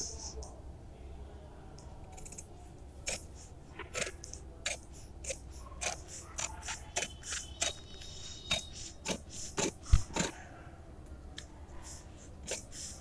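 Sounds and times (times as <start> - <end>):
scissors cutting paper: 2.1 - 7.9, 8.5 - 10.4, 12.4 - 13.0.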